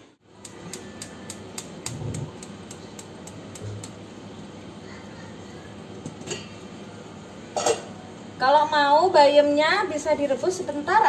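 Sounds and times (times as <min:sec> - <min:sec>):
steady hum: 0:00.0 - 0:08.8
air fryer timer clicking: 0:00.4 - 0:04.0.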